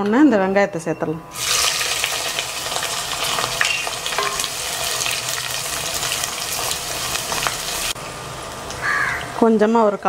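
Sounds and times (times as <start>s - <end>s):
onions sizzling in oil: 1.3s - 9.5s.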